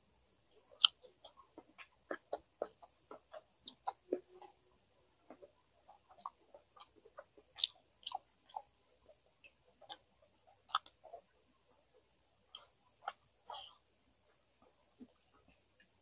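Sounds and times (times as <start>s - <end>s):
wet chewing mouth clicks: 0.7s - 4.6s, 5.4s - 9.2s, 9.8s - 11.2s.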